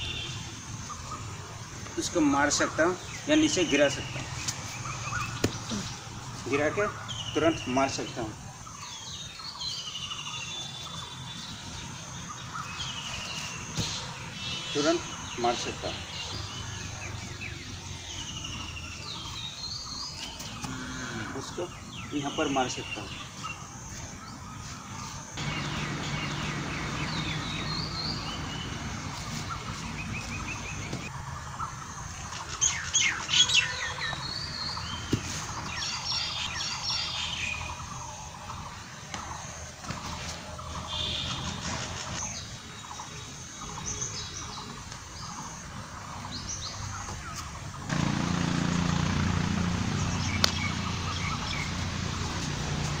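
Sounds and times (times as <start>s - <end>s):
small birds chirping: 0.0s - 53.0s.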